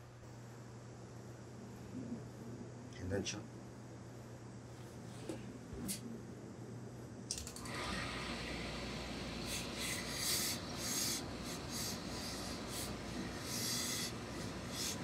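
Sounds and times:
steam hissing bursts: 7.7s - 15.0s.

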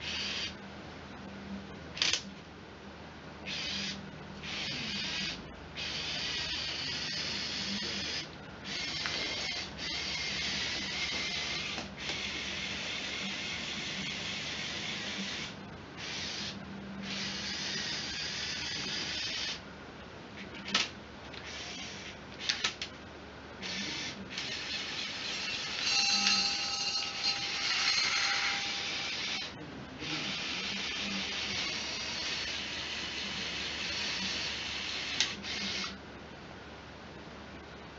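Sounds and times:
small electric motors whirring: 0.0s - 0.6s, 3.5s - 19.6s, 21.4s - 22.8s, 23.6s - 36.0s
high-pitched motor whine: 3.5s - 19.6s, 23.6s - 36.0s.

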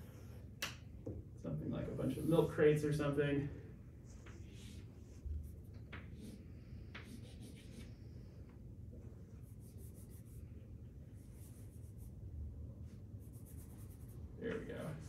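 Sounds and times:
low steady hum: 0.0s - 15.0s
chalk scratching on chalkboard: 4.4s - 8.1s, 9.3s - 10.4s, 11.2s - 12.2s, 12.9s - 15.0s.

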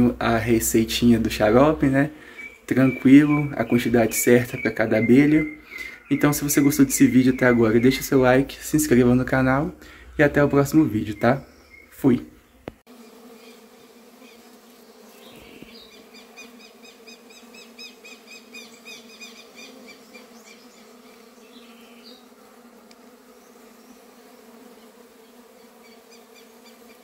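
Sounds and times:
bees buzzing: 0.0s - 27.0s
rapid high chirping: 2.3s - 8.3s.

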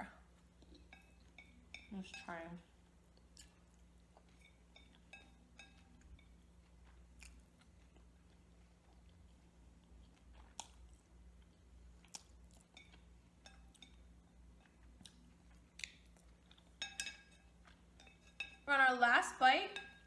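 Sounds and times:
faint steady hum: 0.0s - 20.0s
chewing and mouth sounds: 2.8s - 18.6s.

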